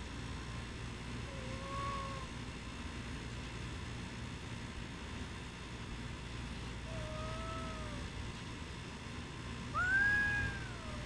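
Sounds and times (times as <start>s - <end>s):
cat meowing: 1.3s - 2.3s, 6.9s - 8.1s, 9.8s - 11.0s.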